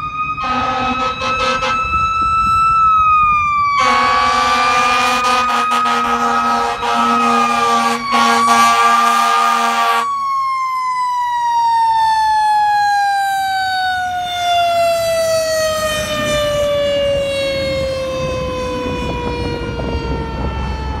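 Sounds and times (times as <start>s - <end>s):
mechanical siren wailing: 0.0s - 21.0s
truck rumble: 0.0s - 21.0s
air horn blowing: 0.4s - 2.0s, 3.8s - 10.1s.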